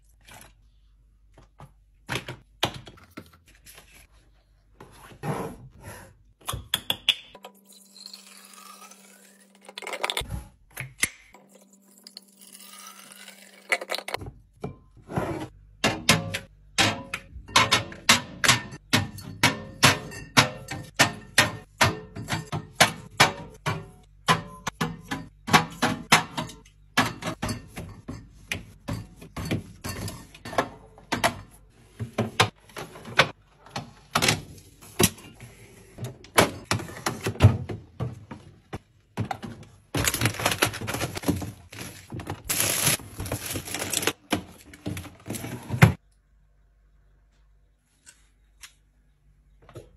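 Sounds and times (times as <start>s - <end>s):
bottles clinking on glass shelves: 15.9s - 32.6s.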